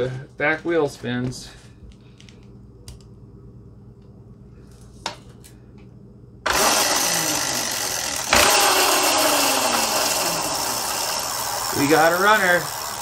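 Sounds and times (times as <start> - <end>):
electric scooter motor whirring: 6.5 - 13.0.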